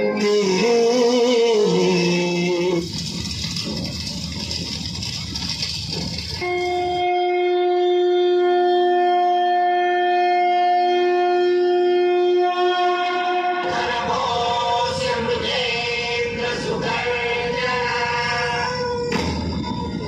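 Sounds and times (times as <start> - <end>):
long horn-like note: 6.4 - 14.0.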